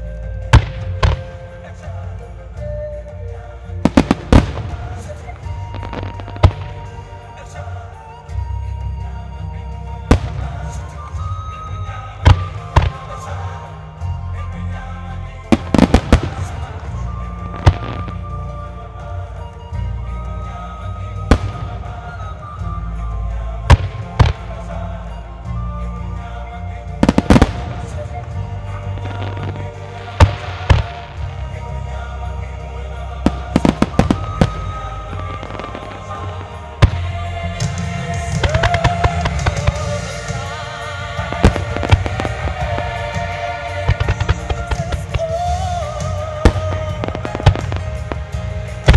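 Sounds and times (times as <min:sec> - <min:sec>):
background music: 0:00.0 - 0:48.9
firework shells bursting: 0:38.2 - 0:48.9.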